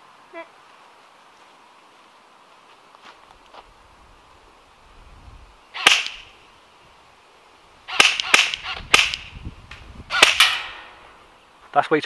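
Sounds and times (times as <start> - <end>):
airsoft rifle shots: 5.8 - 6.3, 7.9 - 9.4, 10.1 - 11.0.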